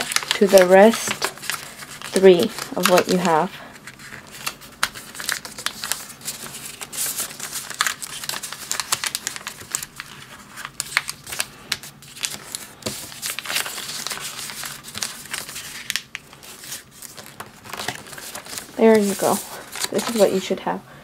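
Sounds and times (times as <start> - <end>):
paper being folded and creased: 0.0 - 20.5.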